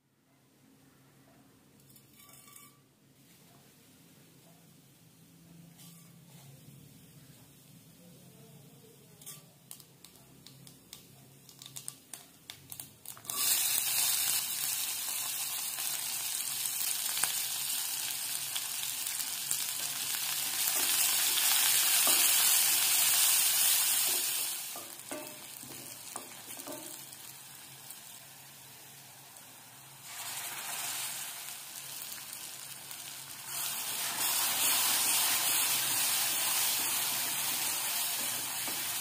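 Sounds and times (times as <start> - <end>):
hot oil crackling and popping: 9.2 - 39.0
loud sizzling frying: 9.2 - 39.0.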